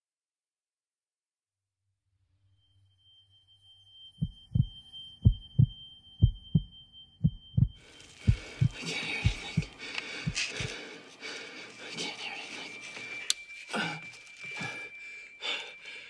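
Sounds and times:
faint high steady tone: 0:02.3 - 0:16.0
heartbeat thumps: 0:04.2 - 0:10.8.

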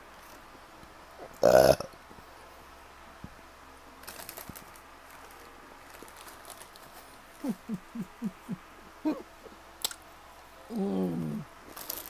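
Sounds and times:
woman making short low sounds: 0:07.4 - 0:09.3, 0:10.7 - 0:11.5
mouth clicks: 0:09.8 - 0:10.0.

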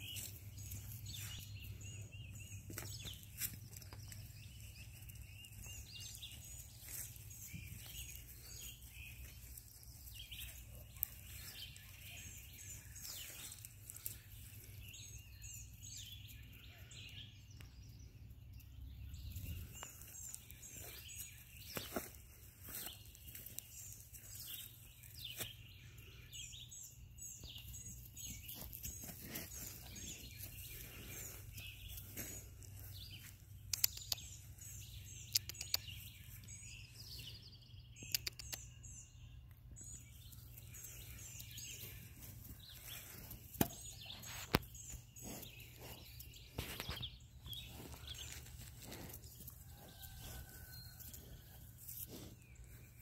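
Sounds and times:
sharp clicks: 0:33.7 - 0:34.3, 0:35.3 - 0:36.0, 0:38.0 - 0:38.7.

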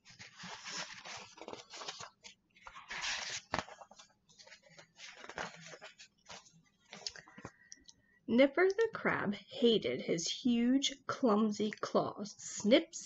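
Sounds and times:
book pages rustling and flapping: 0:00.0 - 0:07.6.

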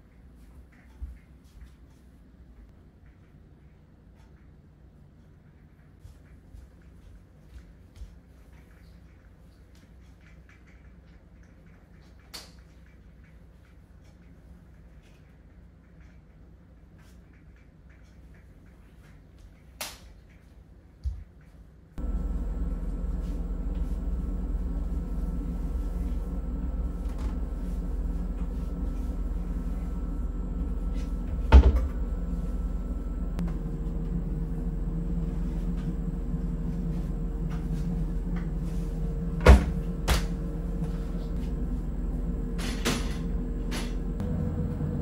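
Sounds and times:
washing machine humming: 0:20.9 - 0:45.0.

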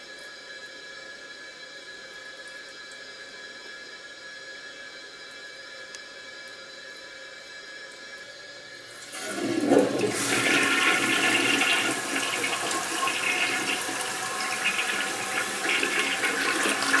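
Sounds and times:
toilet flushing: 0:08.9 - 0:17.0.

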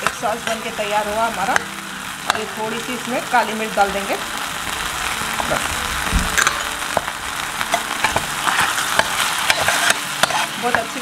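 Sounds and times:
sauce sizzling in oil: 0:00.0 - 0:11.0.

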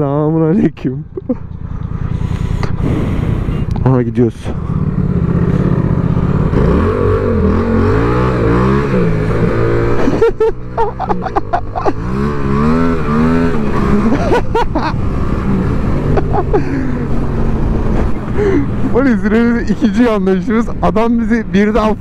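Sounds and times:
motorcycle engine accelerating: 0:00.0 - 0:22.0.

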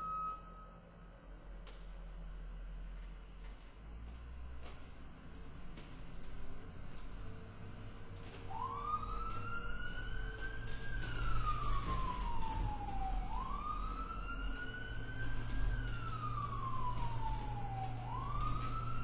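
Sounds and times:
wailing siren: 0:00.0 - 0:00.8, 0:08.2 - 0:19.0.

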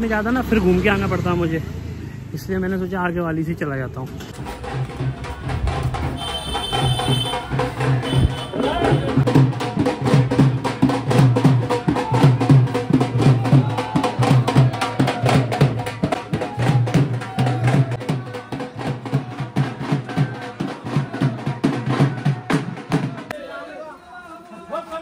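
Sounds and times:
fast drum beat: 0:04.4 - 0:23.3.

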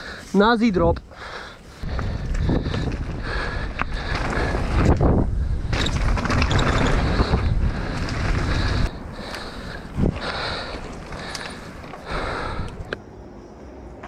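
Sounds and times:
bike rattling on dirt trail: 0:01.8 - 0:12.9
wind buffeting microphone: 0:01.8 - 0:13.0.

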